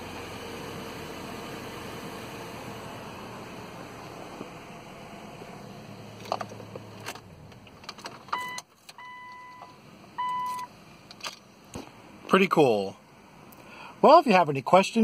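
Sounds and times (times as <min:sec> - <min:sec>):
car electronic warning chime: 0:08.3 - 0:10.7.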